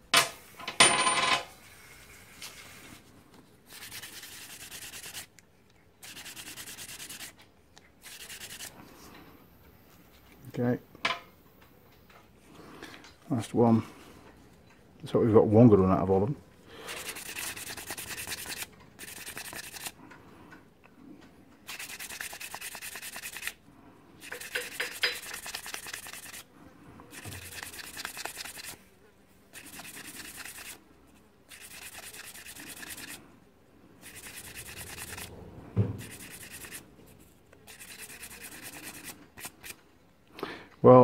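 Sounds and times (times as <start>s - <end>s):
hand scrubbing metal piston: 3.7s - 5.3s, 6.0s - 7.3s, 8.0s - 8.7s, 16.9s - 20.0s, 21.7s - 23.6s, 24.2s - 26.4s, 27.1s - 28.8s, 29.5s - 30.8s, 31.5s - 33.2s, 34.0s - 35.3s, 36.0s - 39.8s.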